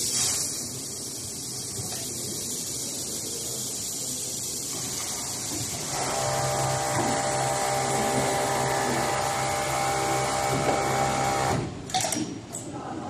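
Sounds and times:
sewing machine whining: 0:05.9 - 0:11.6.

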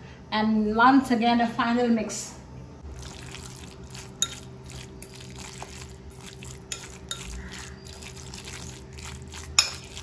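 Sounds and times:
fork scraping glass bowl: 0:03.0 - 0:10.0.

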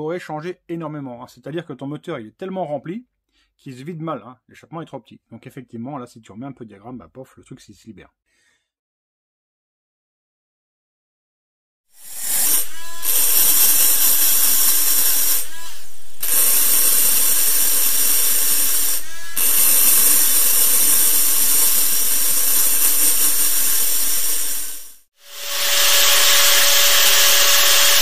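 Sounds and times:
rotary grinder whirring on metal: 0:12.0 - 0:28.0.

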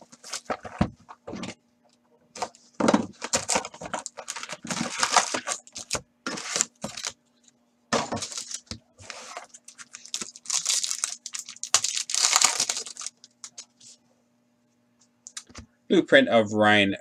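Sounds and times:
foil pack tearing: 0:03.2 - 0:07.1, 0:08.2 - 0:13.6
wrapper crinkling: 0:03.2 - 0:07.2, 0:08.2 - 0:13.8.

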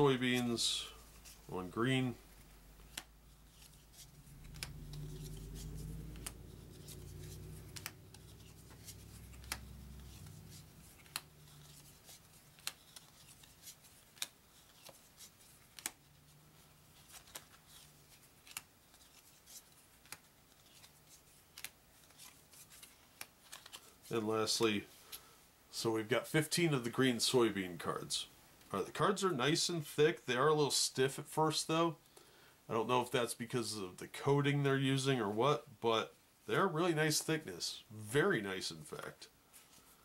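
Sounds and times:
low hum: 0:00.8 - 0:12.0
stiff cards snapping: 0:04.3 - 0:15.0, 0:15.7 - 0:16.0, 0:17.0 - 0:17.8, 0:18.4 - 0:23.8.

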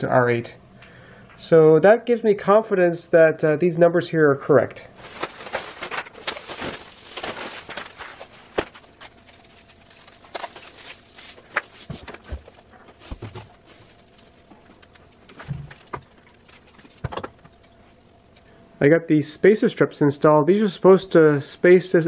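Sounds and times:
faint steady hum: 0:00.0 - 0:22.0
foil rustling and crinkling: 0:05.0 - 0:17.0.

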